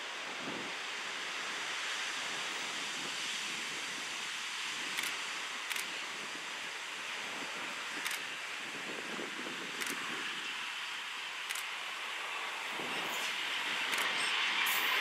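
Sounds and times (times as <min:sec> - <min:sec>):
sharp clicks: 0:05.0 - 0:05.9, 0:08.0 - 0:08.2, 0:09.8 - 0:10.0, 0:11.5 - 0:11.7, 0:13.9 - 0:14.2
diesel locomotives rushing noise: 0:11.8 - 0:15.0.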